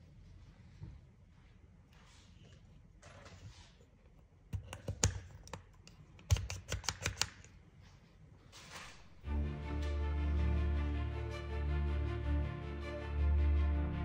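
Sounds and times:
pistol parts clicking: 0:04.6 - 0:07.6
music: 0:09.2 - 0:14.0.

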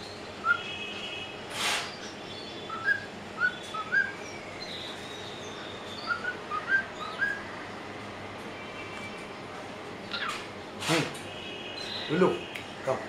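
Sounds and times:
cockatiel whistling: 0:02.7 - 0:04.2, 0:06.0 - 0:07.4.

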